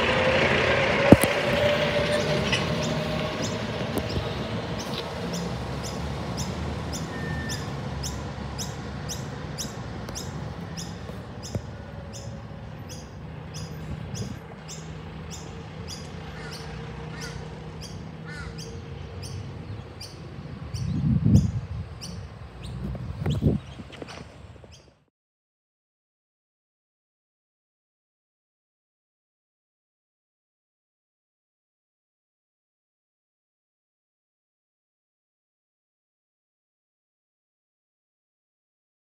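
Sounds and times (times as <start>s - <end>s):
loud low rumble: 0.0s - 23.9s
diesel truck engine driving: 0.0s - 25.1s
bird chirps: 2.2s - 25.0s.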